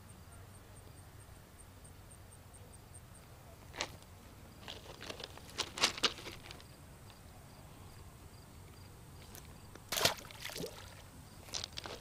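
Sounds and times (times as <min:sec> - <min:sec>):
fish splashing into water: 0:09.9 - 0:11.0.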